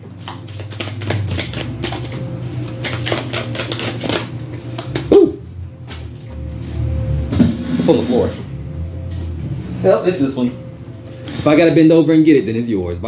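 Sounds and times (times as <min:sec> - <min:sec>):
cards being shuffled: 0:00.1 - 0:05.2.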